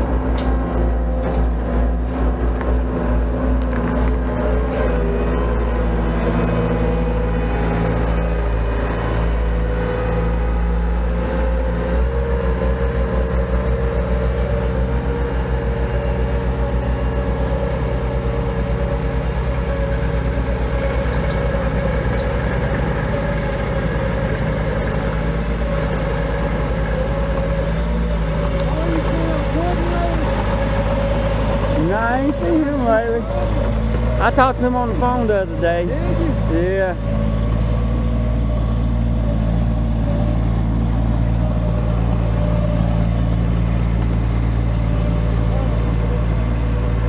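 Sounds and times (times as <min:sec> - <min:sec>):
construction equipment engines running: 0:00.0 - 0:47.0.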